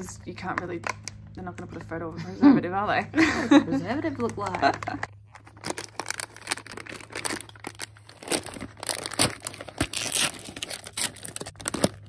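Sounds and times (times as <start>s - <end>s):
chip packet crinkling: 4.6s - 12.0s.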